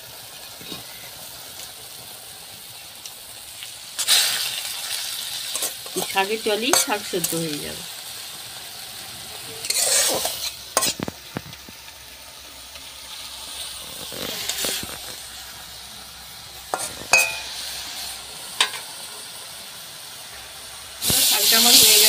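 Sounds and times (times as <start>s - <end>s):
greens sizzling in oil: 0.0s - 22.0s
spatula scraping wok: 0.2s - 1.8s, 3.5s - 19.1s.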